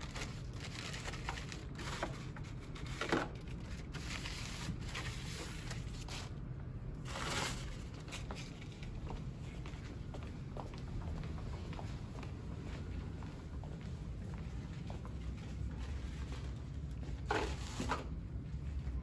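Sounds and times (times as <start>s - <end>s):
paper towels rustling: 0.0s - 6.3s
low room hum: 0.0s - 19.0s.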